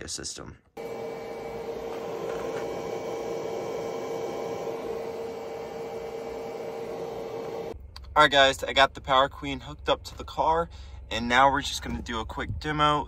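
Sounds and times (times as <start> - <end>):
battery charger high-pitched tone: 0.8 - 7.8.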